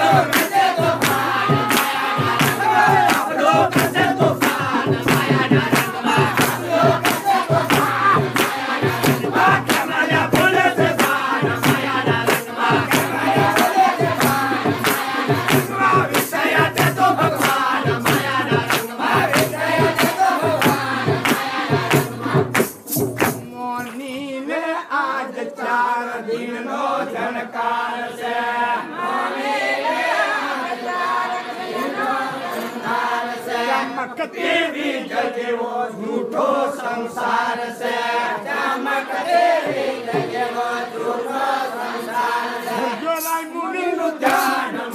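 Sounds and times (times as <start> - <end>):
fast drum beat: 0.0 - 23.8
group of voices singing: 0.0 - 44.9.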